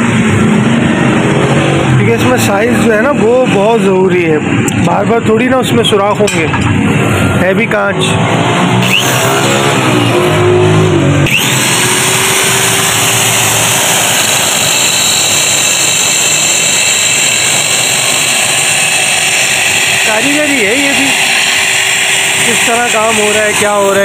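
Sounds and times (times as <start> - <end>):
electric drill grinding glass: 8.7 - 24.0.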